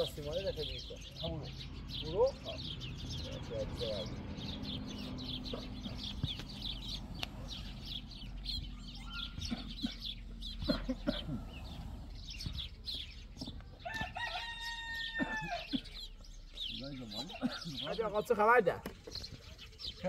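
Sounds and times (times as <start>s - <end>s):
small birds chirping: 0.0s - 20.0s
long level chicken call: 13.8s - 16.0s.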